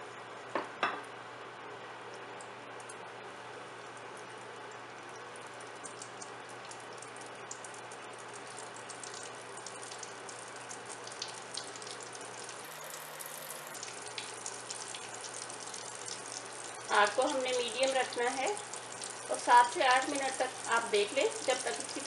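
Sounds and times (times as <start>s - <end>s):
chicken deep-frying in oil: 0.0s - 22.0s.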